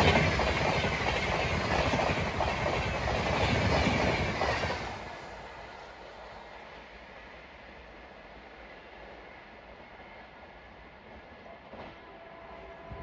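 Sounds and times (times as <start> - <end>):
train coaches rushing by: 0.0 - 13.0.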